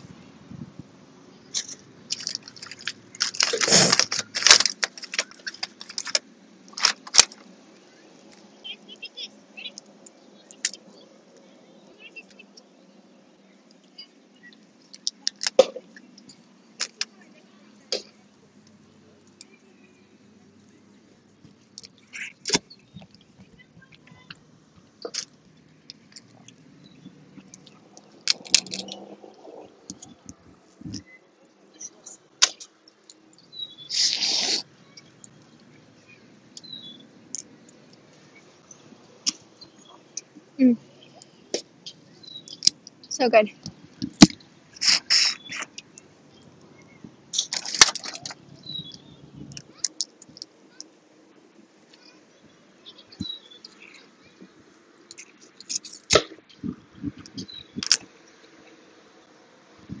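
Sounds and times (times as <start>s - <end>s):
crawfish shells cracking: 1.5s - 7.5s, 27.4s - 30.1s, 47.3s - 50.9s
wet chewing and sucking: 1.6s - 5.8s, 33.9s - 34.7s, 44.8s - 45.8s
birds chirping: 7.4s - 60.0s
hissy slurp: 33.9s - 34.7s, 44.8s - 45.6s.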